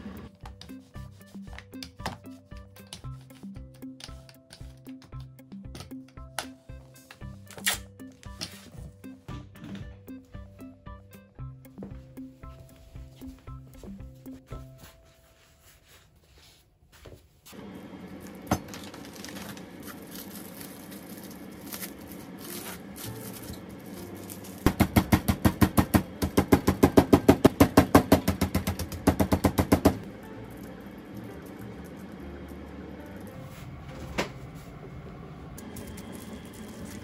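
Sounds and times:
plastic wrap rustling: 17.5s - 24.7s.

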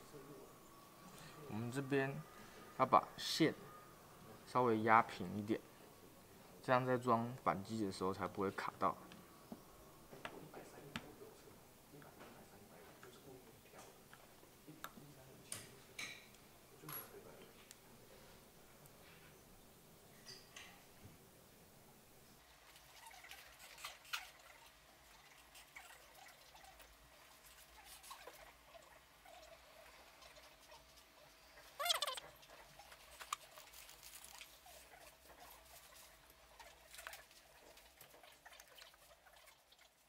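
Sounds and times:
faint steady tone: 0.0s - 7.0s.

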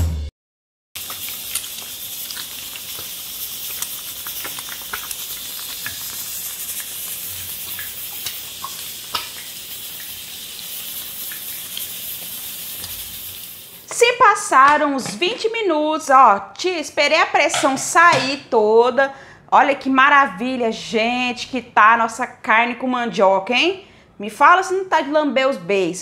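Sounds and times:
egg sizzling in frying pan: 1.0s - 15.4s.

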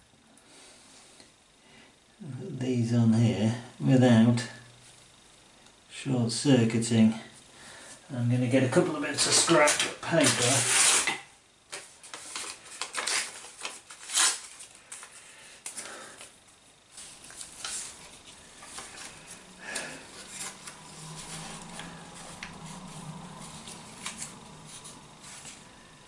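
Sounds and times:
paper rustling: 9.1s - 16.3s, 16.9s - 25.7s.

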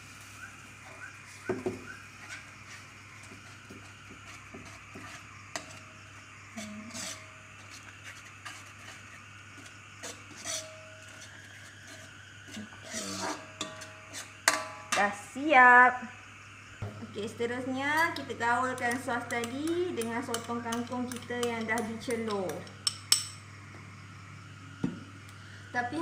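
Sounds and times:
metal scraping on metal: 6.6s - 15.0s.

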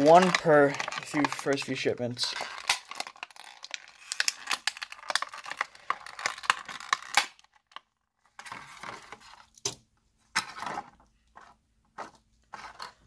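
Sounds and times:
plastic packaging crackling: 0.0s - 9.6s.

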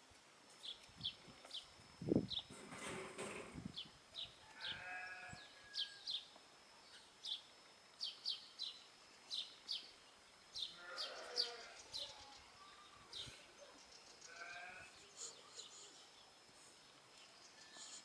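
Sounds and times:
small bird chirping: 3.8s - 18.0s
animal bleating: 4.5s - 5.4s, 10.7s - 11.8s, 14.2s - 15.0s.

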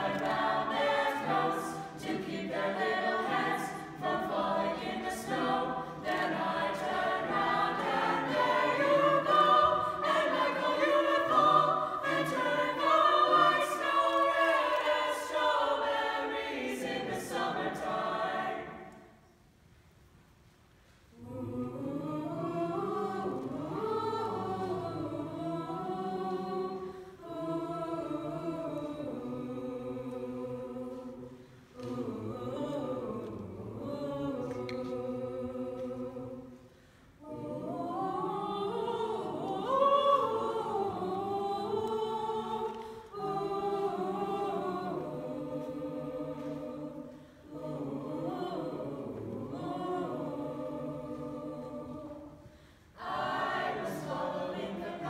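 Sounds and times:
children's choir singing a cappella: 0.0s - 19.7s, 20.5s - 55.0s.

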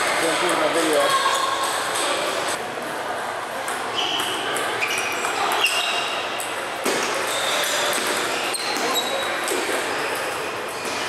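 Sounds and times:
short high squeaks: 3.9s - 6.3s, 7.2s - 9.4s.

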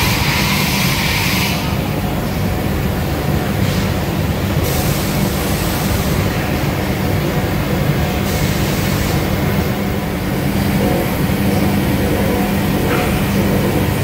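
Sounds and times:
machine hiss: 0.0s - 1.9s, 3.5s - 6.7s, 8.1s - 9.8s
machine hum: 0.0s - 14.0s.

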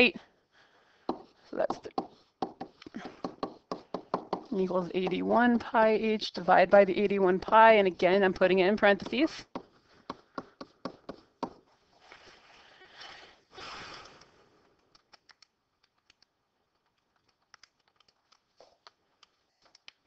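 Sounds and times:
stylus scratching on tablet screen: 1.1s - 7.7s.

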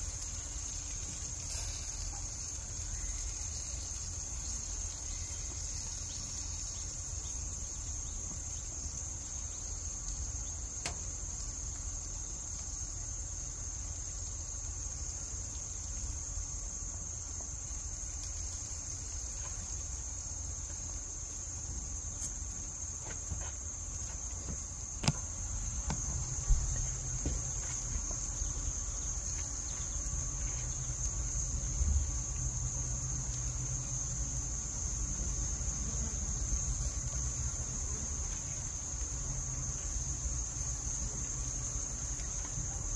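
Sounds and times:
high-pitched insect chirring: 0.0s - 13.2s.

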